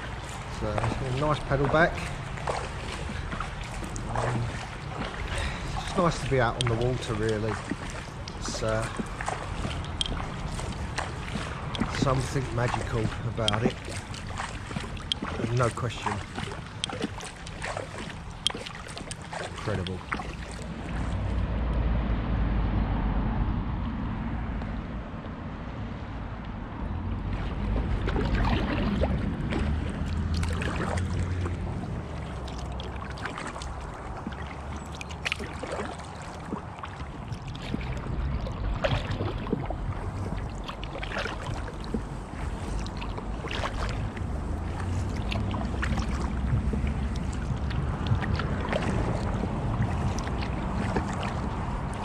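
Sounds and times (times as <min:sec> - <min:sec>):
small splash or drip: 0:00.0 - 0:21.4, 0:27.3 - 0:52.0
paddle strokes in water: 0:00.0 - 0:21.6, 0:27.1 - 0:52.0
wind on microphone: 0:41.4 - 0:52.0.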